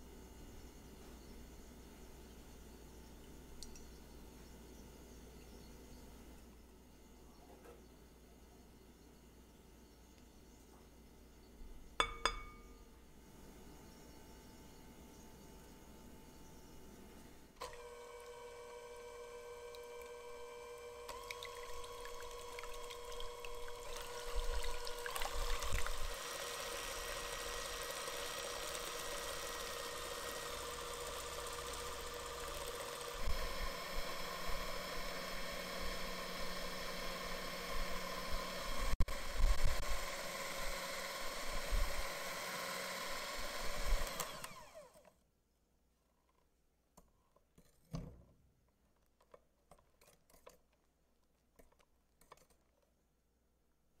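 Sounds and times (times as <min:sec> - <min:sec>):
electric hand mixer whisking: 0:17.6 - 0:45.0.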